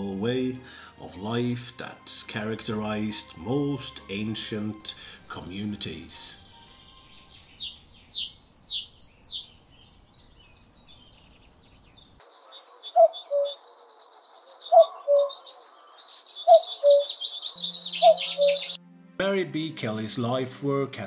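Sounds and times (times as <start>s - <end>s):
chorus of chirping birds: 2.9s - 18.8s
bird whistling sweeping notes: 12.3s - 18.8s.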